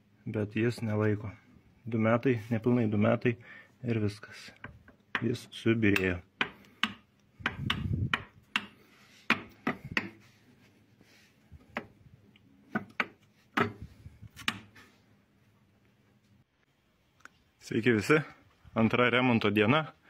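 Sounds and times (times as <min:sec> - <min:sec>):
hard objects clicking and knocking: 0:05.9 - 0:10.2, 0:12.7 - 0:14.8.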